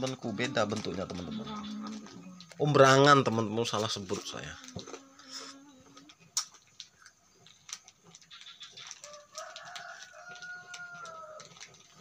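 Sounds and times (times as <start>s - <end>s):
rooster crowing: 9.0s - 11.6s.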